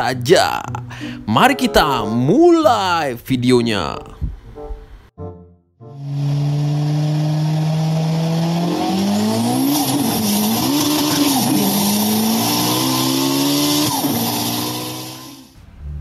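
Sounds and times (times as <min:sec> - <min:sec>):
race car engine revving: 0:06.0 - 0:16.0.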